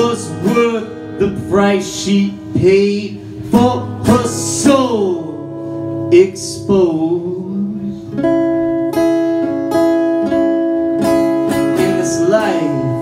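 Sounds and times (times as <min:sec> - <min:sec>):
man singing: 0:00.0 - 0:08.7, 0:11.4 - 0:13.0
acoustic guitar strumming: 0:00.0 - 0:13.0.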